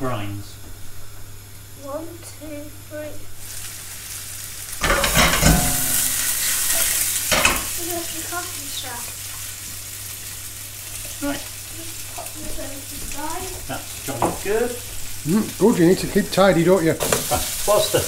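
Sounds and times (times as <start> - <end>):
vegetables sizzling in oil: 1.4 - 18.0
pan knocking on hob: 4.8 - 6.3, 14.1 - 14.5.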